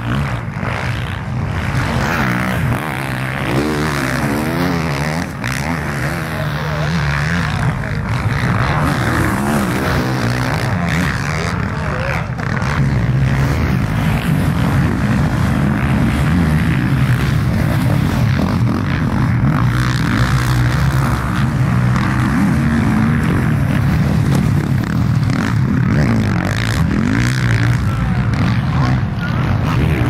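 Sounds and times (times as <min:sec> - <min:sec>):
motocross bikes revving: 0:00.0 - 0:30.0.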